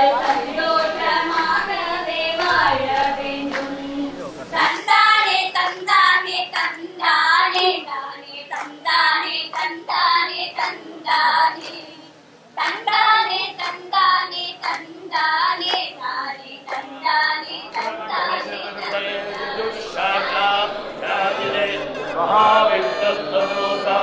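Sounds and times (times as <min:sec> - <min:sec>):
soft musical accompaniment: 0:00.0 - 0:05.6, 0:16.8 - 0:24.0.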